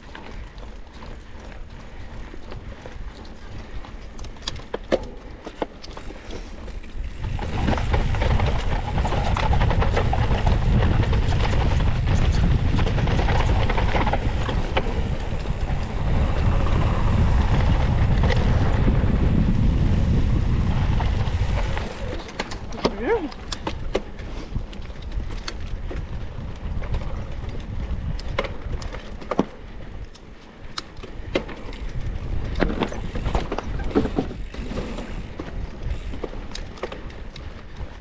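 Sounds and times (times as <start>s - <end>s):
bike rattling and knocking: 0.0s - 38.0s
tyres rolling on rough ground: 0.0s - 38.0s
wind buffeting microphone: 6.0s - 38.0s.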